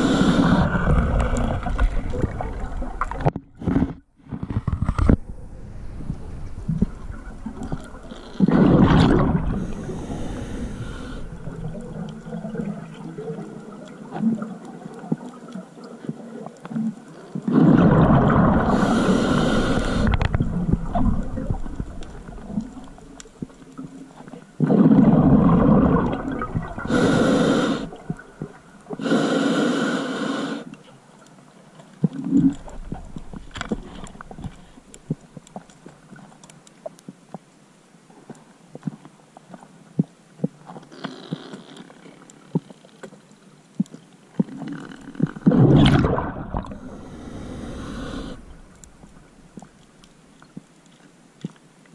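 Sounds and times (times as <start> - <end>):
exhaled breath bubbling underwater: 0.0 - 3.3, 7.6 - 13.4, 17.5 - 22.8, 24.6 - 28.2, 45.3 - 48.7.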